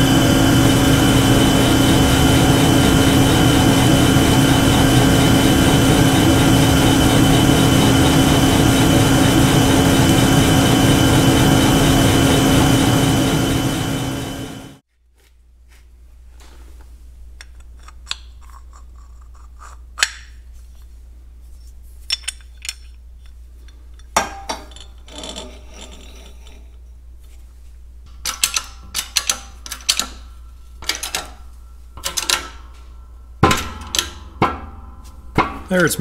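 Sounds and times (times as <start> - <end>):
steady low hum: 0.0 - 14.8, 26.3 - 36.0
metal parts clinking and clunking: 22.0 - 26.4, 28.1 - 31.4
knocks on metal: 33.4 - 35.7.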